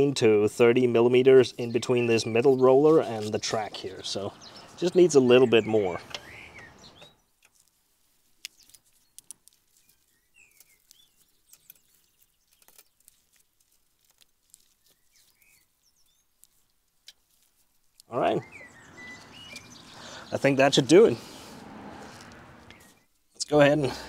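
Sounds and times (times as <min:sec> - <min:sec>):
faint bird chirps: 0:01.6 - 0:07.4, 0:18.1 - 0:20.5.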